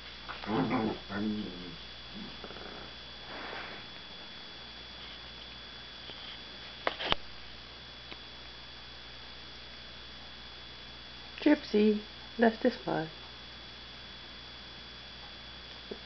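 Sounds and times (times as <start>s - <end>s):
dogs sniffing and snuffling: 2.2s - 4.0s.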